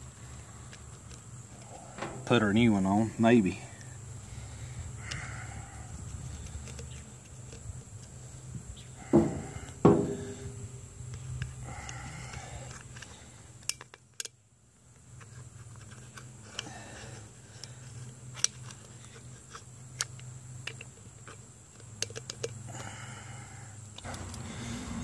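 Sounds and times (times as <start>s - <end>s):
plastic housing clicks and knocks: 22.0s - 22.6s.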